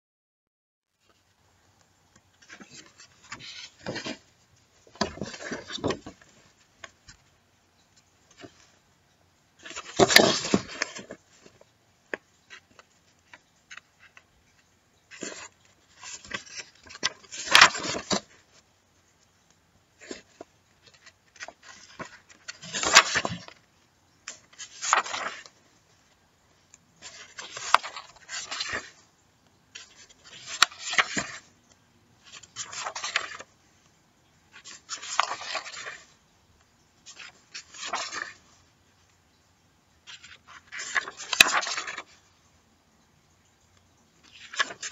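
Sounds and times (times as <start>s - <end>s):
paper pages turning: 2.1s - 7.3s, 8.0s - 8.8s, 9.6s - 18.6s, 20.0s - 29.1s, 29.7s - 33.6s, 34.5s - 36.2s, 37.0s - 38.7s, 40.0s - 42.3s, 44.2s - 44.9s.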